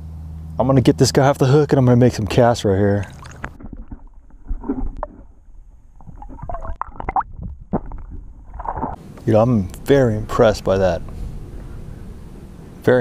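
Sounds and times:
underwater gurgling and sloshing: 3.0s - 9.2s.

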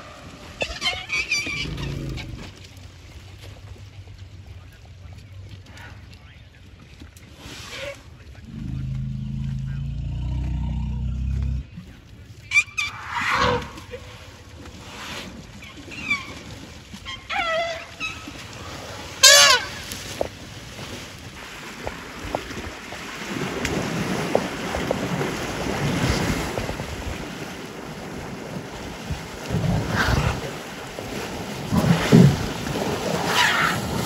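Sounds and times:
elephants trumpeting: 0.0s - 2.6s, 12.5s - 19.9s, 33.2s - 34.0s
elephants splashing in water: 0.0s - 34.0s.

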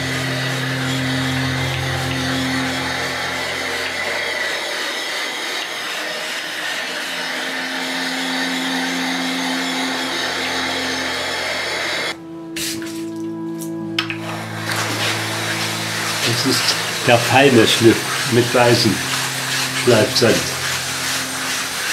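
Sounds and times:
low sustained music: 0.0s - 21.9s
iron disc scraping stone: 14.2s - 21.9s.

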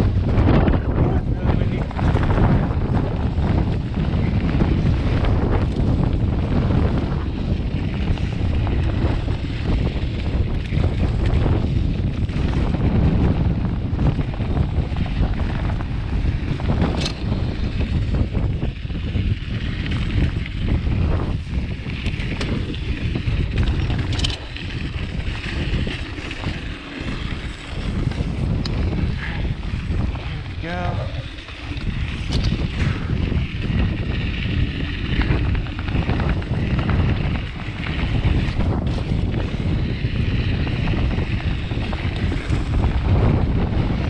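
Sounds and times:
tyres rumbling on dirt trail: 0.0s - 44.0s
wind buffeting microphone: 0.0s - 44.0s
bike clicks and knocks: 1.8s - 30.5s, 31.2s - 44.0s
rattle of clicks: 16.8s - 17.3s, 22.0s - 25.0s, 31.4s - 32.7s.

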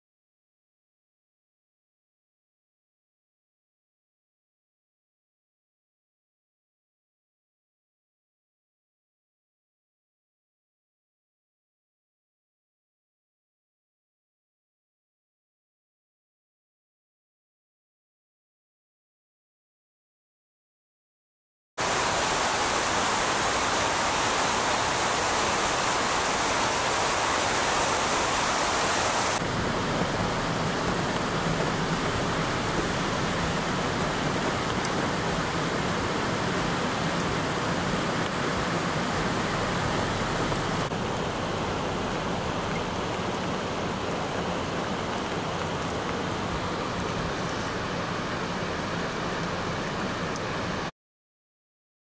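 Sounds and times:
turbulent floodwater rushing: 21.8s - 50.9s.

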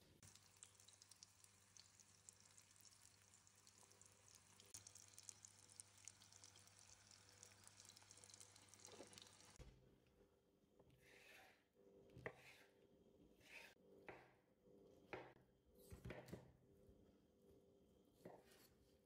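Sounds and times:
food sizzling in oil: 0.2s - 9.6s.

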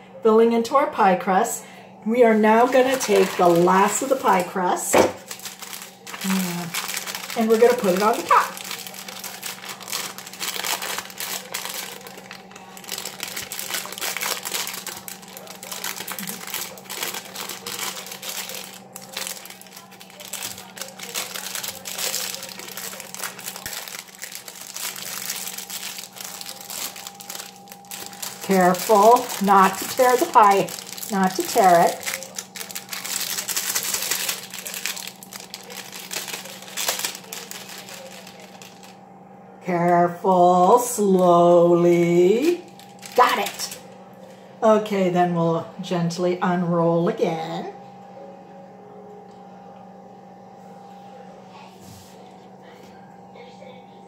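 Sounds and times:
plastic wrapper crinkling: 2.3s - 39.0s, 42.3s - 44.0s.

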